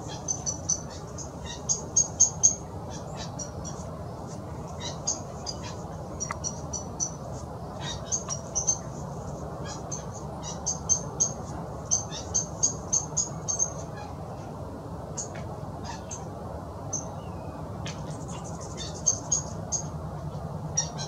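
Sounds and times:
small birds chirping: 0.0 - 9.0, 9.6 - 13.9, 16.9 - 19.9
low background rumble: 0.0 - 21.0.

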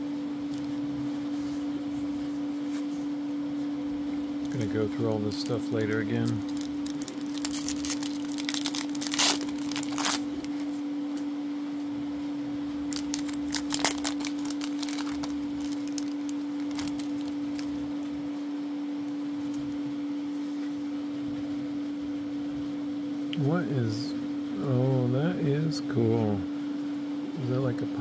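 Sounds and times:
steady low hum: 0.0 - 28.0
foil wrapper crinkling and tearing: 4.4 - 10.7, 12.9 - 18.0.

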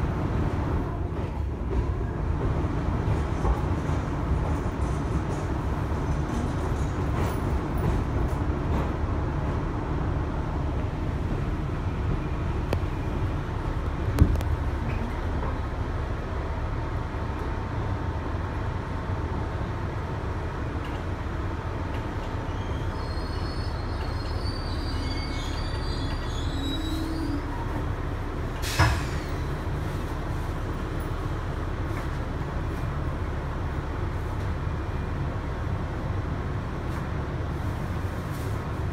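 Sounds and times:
subway car rumble: 0.0 - 38.9
high-pitched wheel squeal: 22.5 - 27.7.

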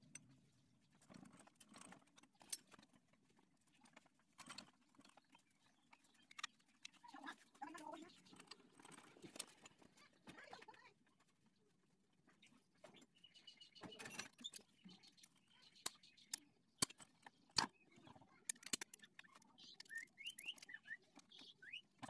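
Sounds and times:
birds chirping: 3.7 - 22.0
metallic clicks of hand tools: 18.5 - 20.8.

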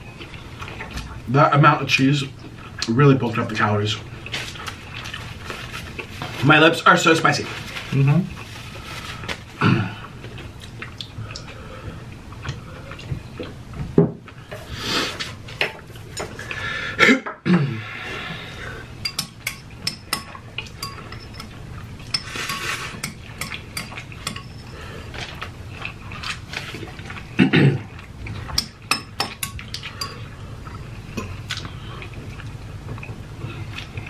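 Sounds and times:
utensils clinking on pan and bowl: 19.0 - 24.8, 28.5 - 30.3.

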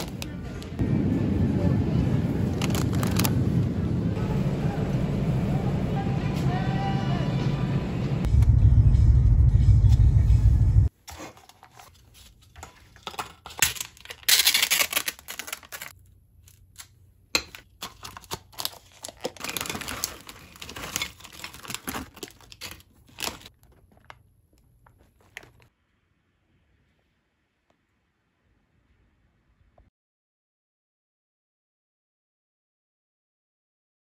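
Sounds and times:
crinkling and rustling: 0.0 - 0.7, 2.5 - 3.4, 10.9 - 25.7.

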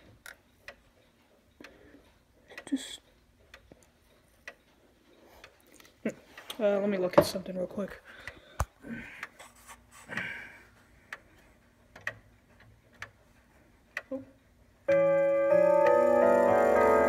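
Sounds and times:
clock ticking faintly: 0.0 - 9.4, 10.9 - 17.0
clock chime ringing: 14.9 - 17.0.

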